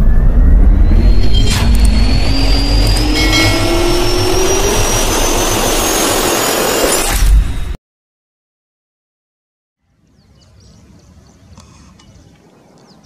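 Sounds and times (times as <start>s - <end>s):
jet engine spooling up: 0.0s - 7.8s.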